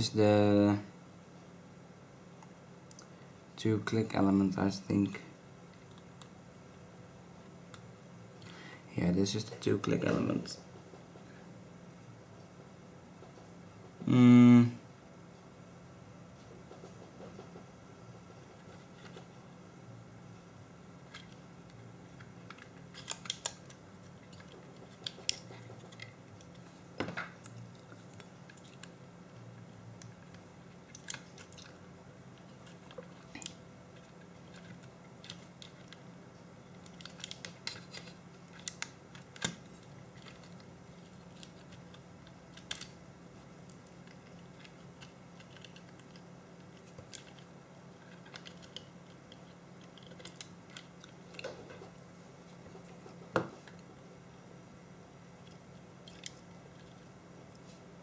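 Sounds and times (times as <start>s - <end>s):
faint low hum: 0.0s - 58.0s
small plastic and metal clicks: 36.8s - 39.6s.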